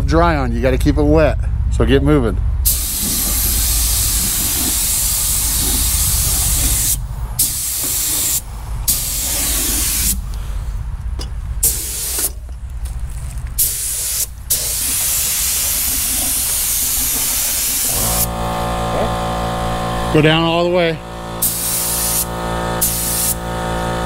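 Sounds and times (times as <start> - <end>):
paint spray gun hissing: 2.7 - 10.3, 11.6 - 12.4, 13.6 - 18.4, 21.4 - 23.5.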